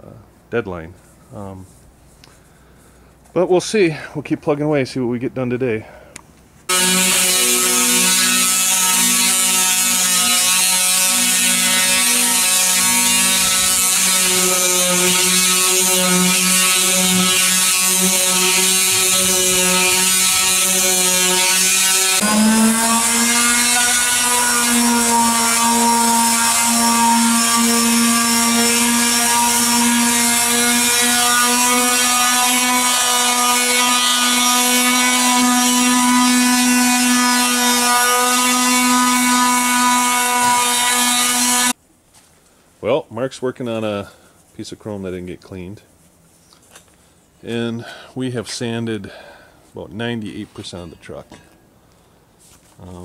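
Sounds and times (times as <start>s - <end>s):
electric sanders buzzing: 6.7s - 41.8s.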